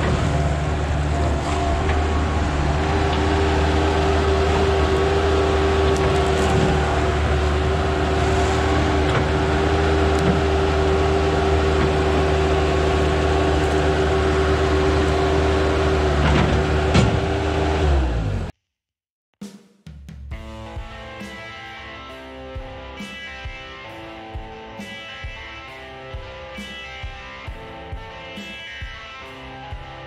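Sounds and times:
bucket working through brush: 0:00.0 - 0:17.4
diesel engine running: 0:00.0 - 0:18.5.

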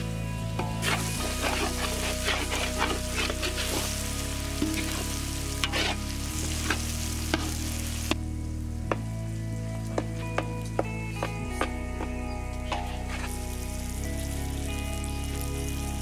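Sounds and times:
background music: 0:00.0 - 0:16.0
food sizzling in a pan: 0:00.0 - 0:16.0
spatula scraping a pan: 0:00.6 - 0:07.6, 0:12.7 - 0:13.5.

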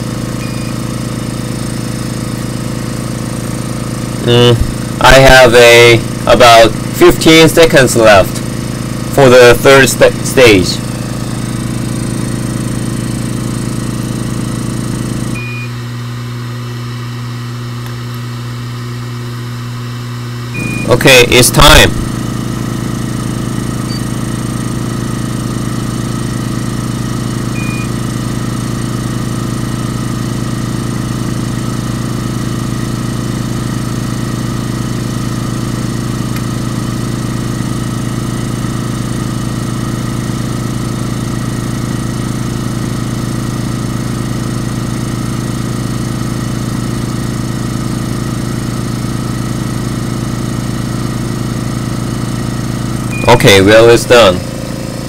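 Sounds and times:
steady low hum: 0:00.0 - 0:12.3, 0:15.3 - 0:22.7.

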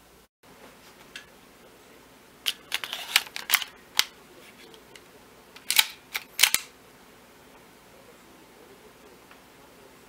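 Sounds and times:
gun mechanism metallic clicks: 0:05.6 - 0:06.7.

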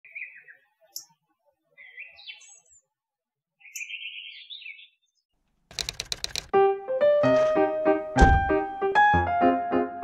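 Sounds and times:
birds chirping: 0:00.0 - 0:02.9, 0:03.6 - 0:06.4.

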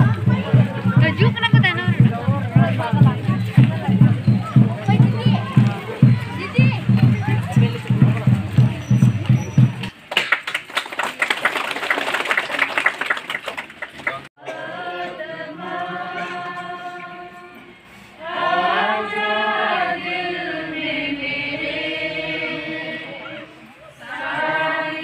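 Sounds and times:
crowd noise: 0:00.0 - 0:25.0
congregation singing a hymn: 0:14.4 - 0:25.0.

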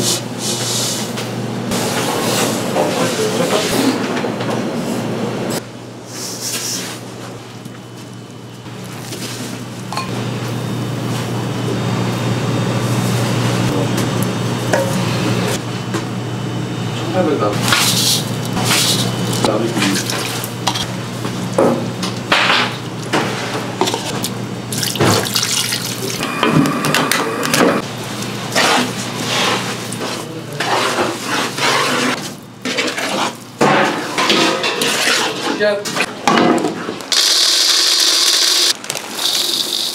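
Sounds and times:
kitchen machinery hum: 0:00.0 - 0:39.9
spatula scraping a wok: 0:28.5 - 0:36.0.

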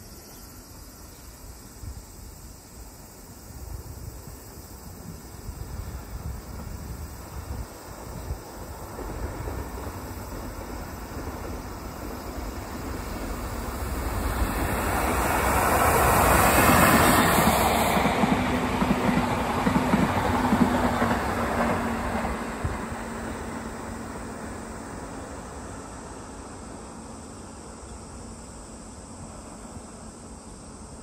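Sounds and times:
electric locomotive passing: 0:00.0 - 0:31.0
train wheels clickety-clack: 0:05.7 - 0:24.1.

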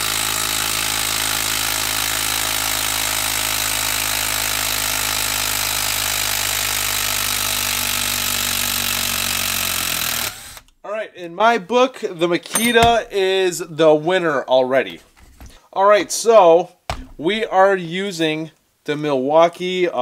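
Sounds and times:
impact driver hammering: 0:07.5 - 0:10.7, 0:12.5 - 0:13.2, 0:16.9 - 0:17.4.

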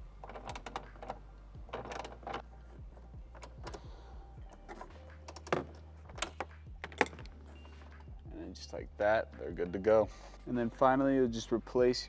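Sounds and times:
socket wrench ratchet clicking: 0:00.2 - 0:02.4.

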